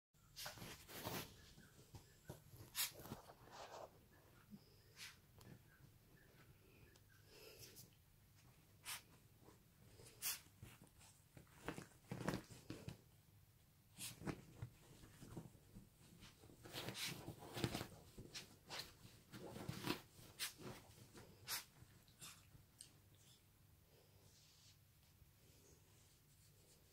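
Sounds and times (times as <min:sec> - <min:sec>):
bed sheets rustling: 0:00.3 - 0:06.5, 0:07.6 - 0:13.2, 0:13.8 - 0:22.1.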